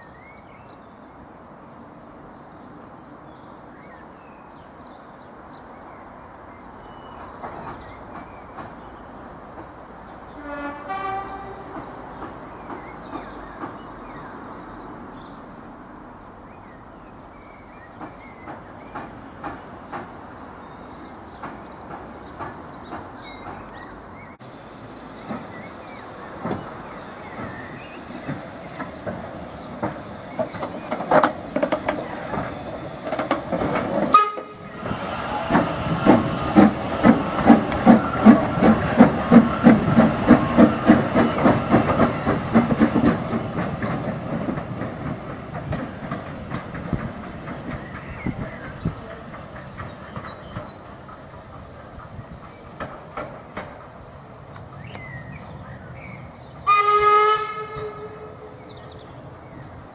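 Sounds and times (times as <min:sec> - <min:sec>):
diesel railcar approaching: 0:00.0 - 0:59.9
birds chirping: 0:00.1 - 0:59.9
steam hissing: 0:24.1 - 0:55.4
steam locomotive exhaust chuffs: 0:24.4 - 0:54.8.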